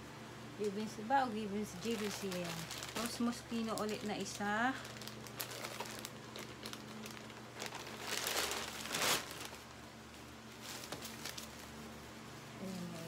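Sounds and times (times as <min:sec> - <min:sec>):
plastic packaging crinkling: 0:01.8 - 0:09.9, 0:10.5 - 0:11.8.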